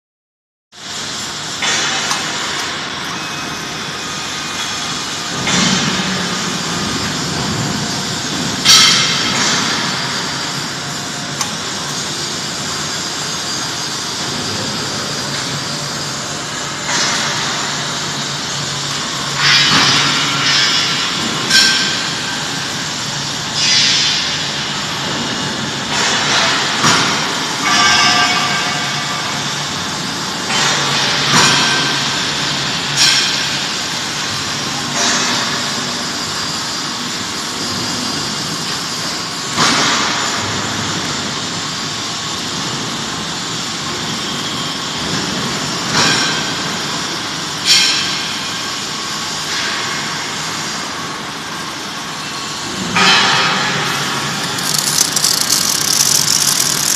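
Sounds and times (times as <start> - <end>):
sudden sharp welding noises: 0.8 - 36.8, 52.5 - 56.9
steady machinery din: 52.9 - 56.9.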